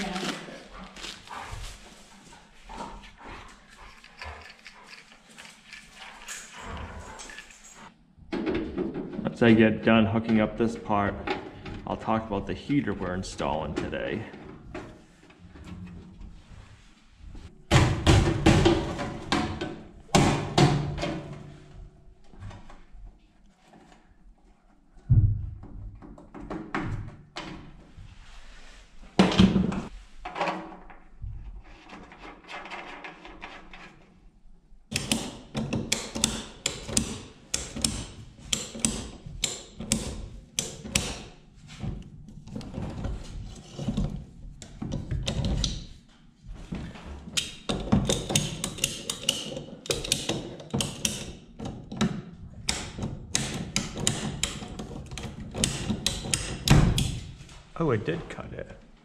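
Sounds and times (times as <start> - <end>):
ratcheting pipe cutter clicking: 34.9 - 41.2, 47.4 - 51.4, 52.7 - 57.2.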